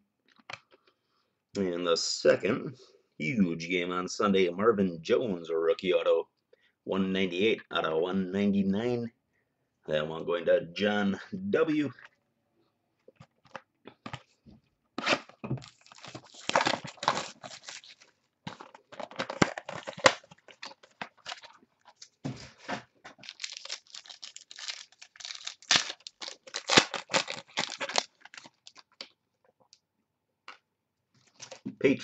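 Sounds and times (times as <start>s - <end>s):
plastic wrap tearing and crackling: 15.0s - 22.2s, 23.1s - 29.1s.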